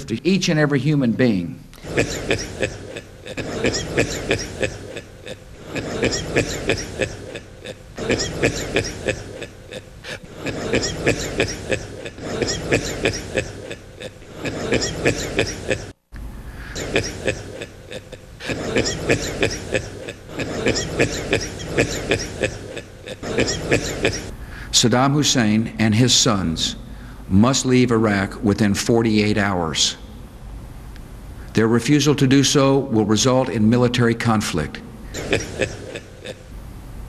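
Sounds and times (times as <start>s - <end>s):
man laughing heartily: 1.8s - 15.9s, 16.7s - 24.3s, 35.1s - 36.5s.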